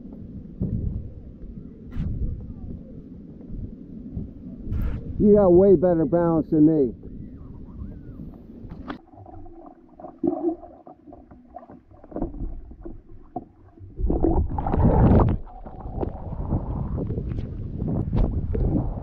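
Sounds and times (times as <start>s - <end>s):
water slapping against kayak hull: 8.7s - 18.9s
water splashing: 8.7s - 19.0s.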